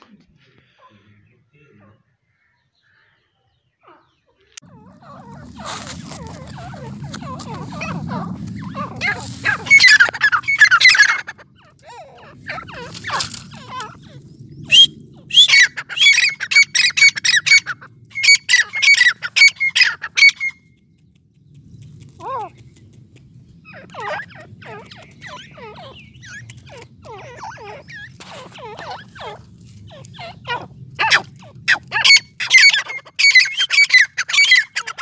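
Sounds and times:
bird calling: 0.0s - 20.7s, 22.0s - 35.0s
low rumble: 4.6s - 18.2s.

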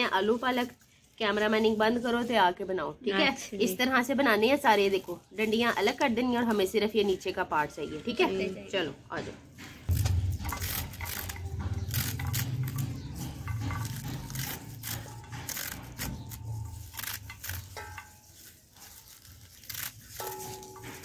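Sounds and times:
knife slicing spinach leaves: 13.9s - 21.0s.

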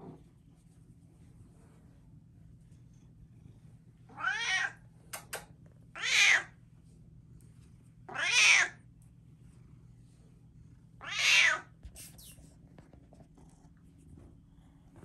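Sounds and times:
cat meowing: 4.1s - 4.8s, 6.0s - 6.5s, 8.1s - 8.8s, 11.0s - 11.7s.

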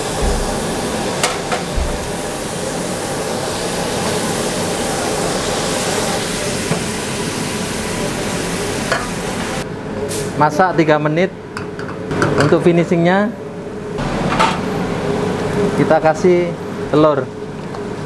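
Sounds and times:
frying pan hissing: 0.0s - 9.6s.

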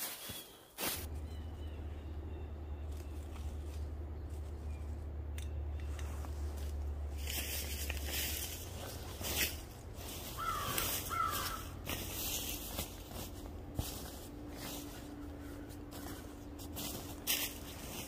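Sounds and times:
rustling: 5.7s - 18.0s.

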